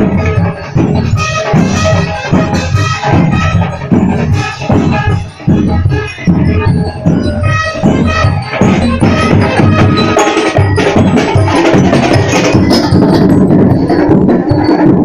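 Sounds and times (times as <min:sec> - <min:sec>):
bell lyres ringing: 0:00.0 - 0:15.0
snare and bass drums: 0:00.0 - 0:15.0.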